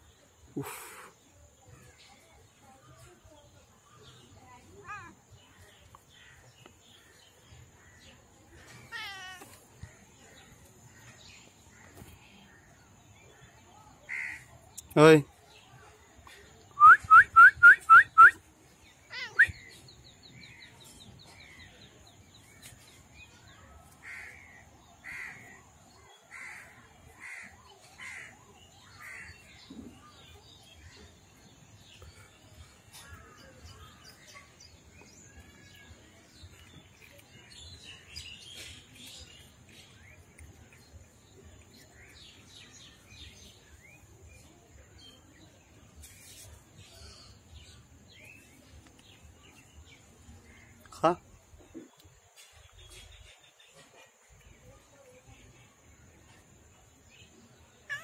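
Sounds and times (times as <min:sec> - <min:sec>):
harsh bird calls: 0:18.9 - 0:19.9.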